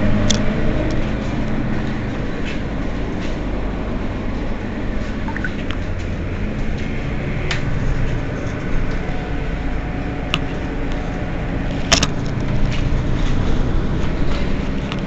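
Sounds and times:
bus engine rumbling: 0.0 - 15.0
sharp clicks and knocks: 11.9 - 12.9.

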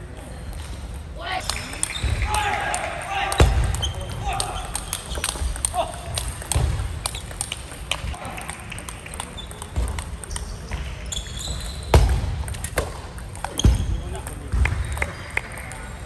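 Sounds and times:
table tennis balls clicking: 0.5 - 16.0
shoe squeak: 1.5 - 2.2, 3.7 - 5.4, 10.3 - 12.1.

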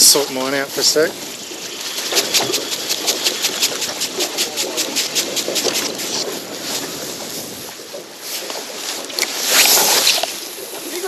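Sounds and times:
wind and water hiss: 0.0 - 11.0
fishing reel clicking: 0.4 - 6.3.

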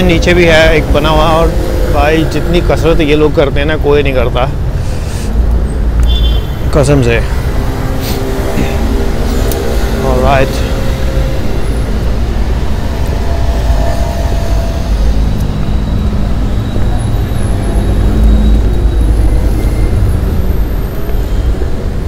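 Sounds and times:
low rumble of passing cars: 0.0 - 22.0.

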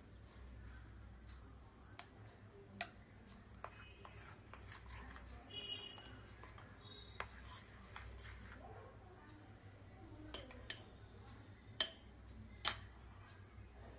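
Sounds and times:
spoon clinking against glass bowl: 11.8 - 13.0.

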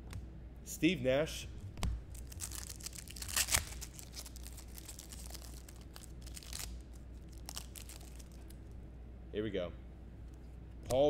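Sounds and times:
foil wrapper crinkling: 2.1 - 8.6
foil wrapper ripping: 2.1 - 8.6.

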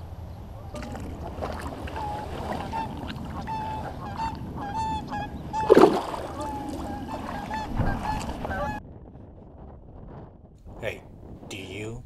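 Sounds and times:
geese honking: 0.6 - 8.8
water splash: 0.7 - 4.4, 5.6 - 8.6.

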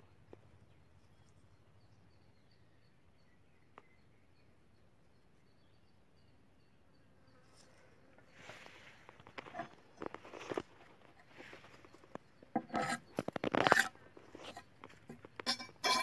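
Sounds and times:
high insect chirping: 1.2 - 16.0.

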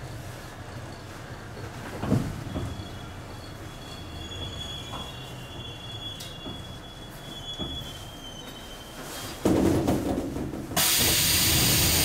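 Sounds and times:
subway train whine and rumble: 0.0 - 12.0
air hiss: 10.8 - 12.0.

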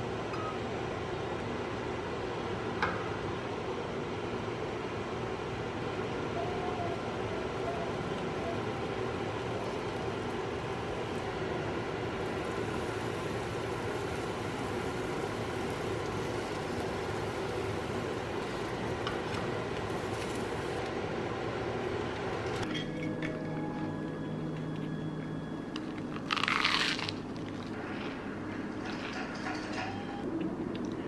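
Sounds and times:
sandwich sizzling in frying pan: 9.6 - 20.8.

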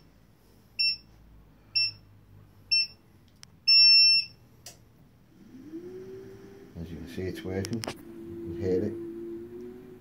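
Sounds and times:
treadmill console beeps: 0.8 - 1.1, 1.8 - 2.0, 2.7 - 3.0, 3.7 - 4.4.

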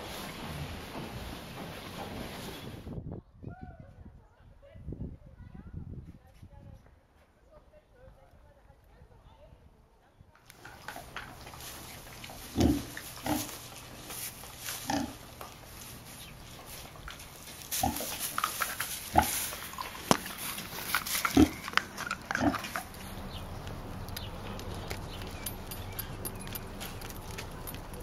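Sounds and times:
straw rustling: 10.5 - 28.0
pigs grunting: 10.6 - 14.1, 14.8 - 15.4, 16.4 - 23.0.

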